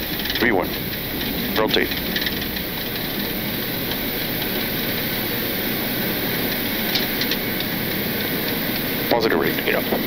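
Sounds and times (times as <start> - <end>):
jet engines and airflow roaring: 0.0 - 10.0.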